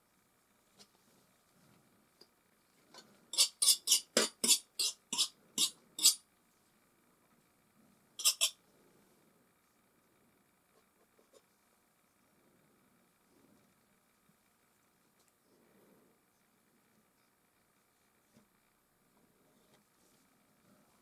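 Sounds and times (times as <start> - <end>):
palette knife scraping paint: 3.3 - 6.2, 8.2 - 8.6.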